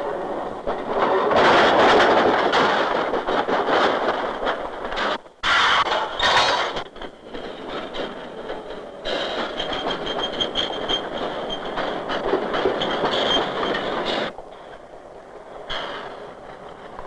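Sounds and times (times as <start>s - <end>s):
steel wheels rumbling on rail: 0.0s - 17.0s
high wheel squeal: 9.0s - 14.3s.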